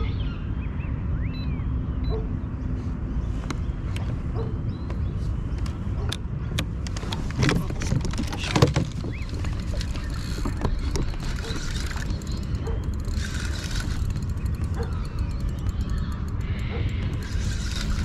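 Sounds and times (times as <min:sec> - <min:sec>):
steady low rumble: 0:00.3 - 0:18.0
wind buffeting microphone: 0:02.6 - 0:18.0
spinning reel whirring: 0:09.1 - 0:18.0.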